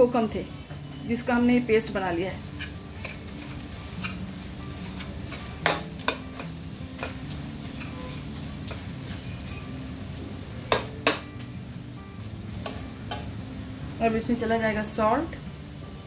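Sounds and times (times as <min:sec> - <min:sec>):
oil sizzling: 0:00.0 - 0:16.0
ladle scraping a pan: 0:02.4 - 0:04.2, 0:07.0 - 0:09.7.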